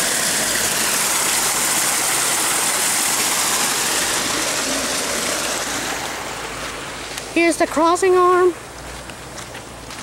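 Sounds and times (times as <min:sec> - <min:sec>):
water pouring into pond: 0:00.0 - 0:07.3.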